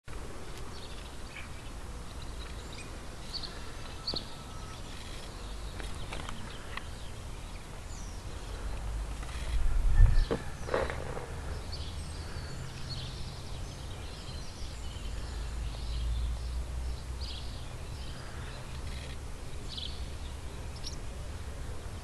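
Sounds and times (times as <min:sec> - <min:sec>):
low street rumble: 0:00.1 - 0:22.0
wind buffeting on microphone: 0:09.3 - 0:11.8.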